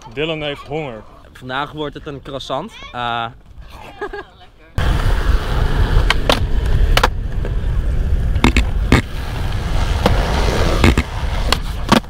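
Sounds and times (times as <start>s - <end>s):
skateboard wheels rolling on concrete: 0.0s - 12.0s
sharp skateboard clacks: 6.0s - 7.2s, 8.4s - 9.1s, 10.0s - 12.0s.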